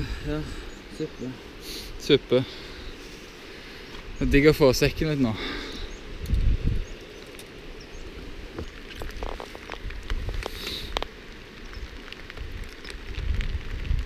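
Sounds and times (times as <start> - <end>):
raindrops ticking: 3.5 - 14.0.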